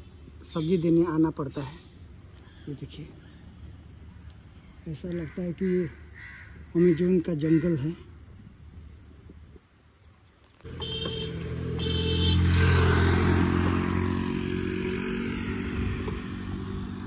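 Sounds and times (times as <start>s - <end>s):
motor scooter passing: 10.7s - 17.0s.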